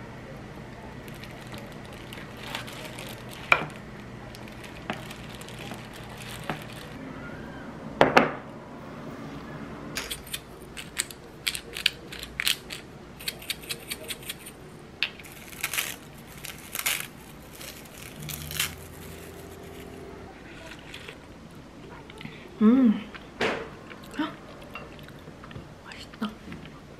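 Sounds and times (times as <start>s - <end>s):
dried seaweed crunching: 0.8s - 7.0s, 15.2s - 21.2s.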